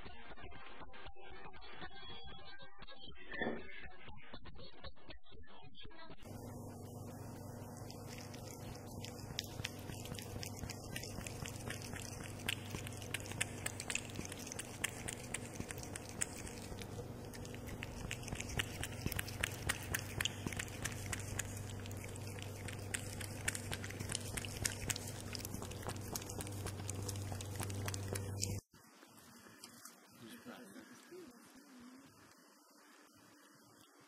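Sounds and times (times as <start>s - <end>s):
cat lapping milk: 6.2s - 28.6s
low hum: 6.2s - 28.7s.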